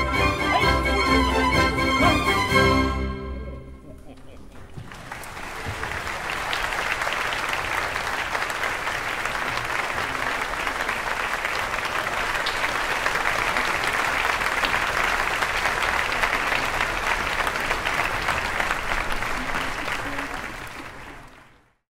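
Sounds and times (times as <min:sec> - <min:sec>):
audience applauding: 0:00.0 - 0:03.0, 0:04.5 - 0:21.8.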